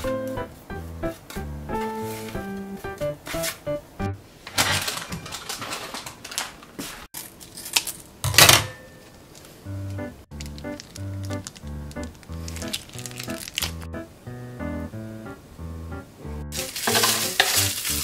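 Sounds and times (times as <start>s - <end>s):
plastic crinkle: 4.5s - 8.1s, 10.3s - 13.9s, 16.5s - 18.0s
scissors snipping plastic sachet: 10.4s - 13.9s, 16.6s - 18.0s.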